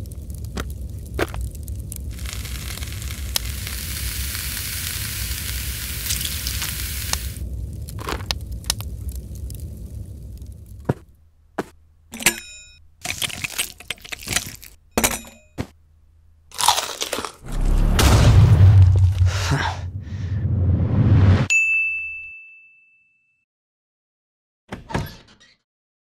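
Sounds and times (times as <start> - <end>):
noisy low rumble effect: 0.0 - 12.2, 17.4 - 21.5
plastic bricks crunching and cracking: 7.9 - 9.0, 13.0 - 14.8, 16.5 - 17.5
bright ding: 21.5 - 23.4.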